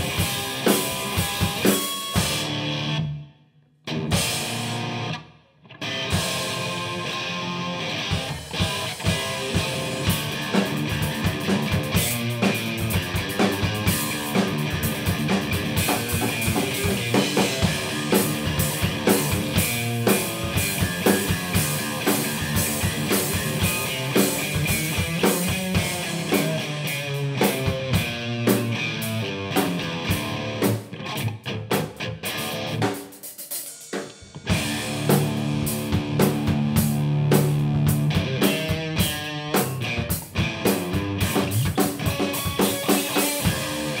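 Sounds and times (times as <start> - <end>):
instrumental rock band: 0.0 - 44.0
drum hits: 8.2 - 26.7, 32.8 - 38.9.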